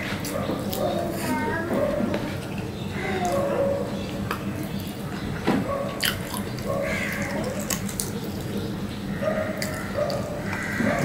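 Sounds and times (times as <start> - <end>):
wet chewing and smacking: 5.8 - 8.8, 9.4 - 11.0.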